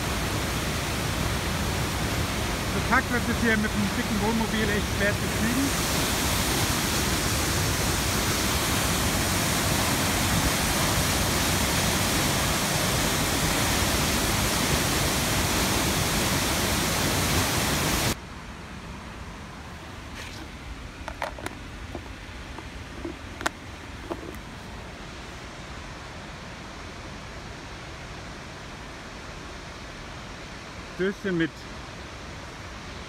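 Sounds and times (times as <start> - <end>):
waterfall rushing: 0.0 - 18.2.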